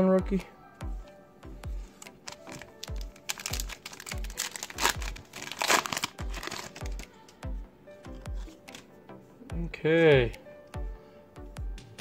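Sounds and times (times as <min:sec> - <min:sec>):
foil wrapper crinkling and tearing: 0:02.0 - 0:07.1
background music with bass beat: 0:06.2 - 0:12.0.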